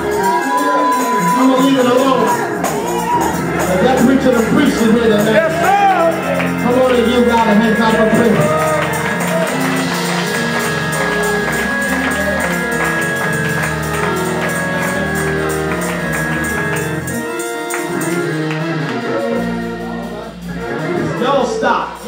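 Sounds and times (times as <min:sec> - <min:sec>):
keyboard chords: 0:00.0 - 0:22.0
tambourine beat: 0:00.0 - 0:22.0.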